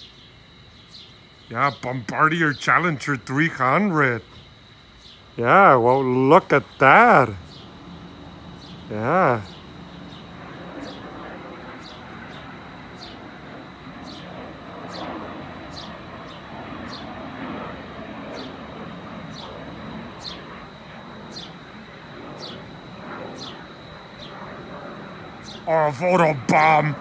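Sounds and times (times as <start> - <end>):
small bird chirping: 0.0 - 2.1, 4.2 - 5.4, 7.4 - 7.9, 8.5 - 13.4, 14.0 - 17.4, 18.2 - 24.5, 25.3 - 26.8
distant jet engines: 0.0 - 27.0.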